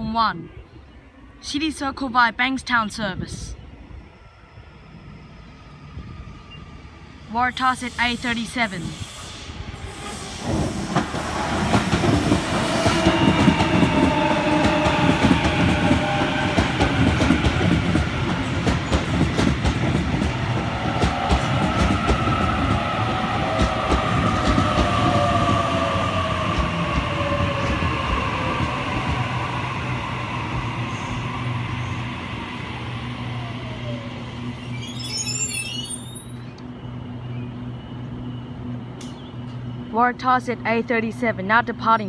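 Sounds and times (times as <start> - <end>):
train rumble: 2.7 - 35.0.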